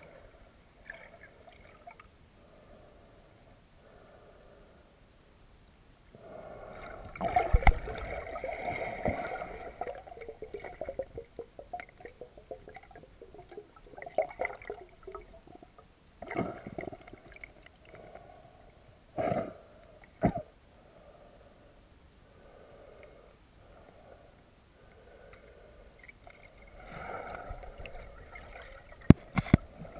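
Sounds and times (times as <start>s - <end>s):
underwater river gurgling: 6.2s - 18.4s, 26.3s - 29.9s.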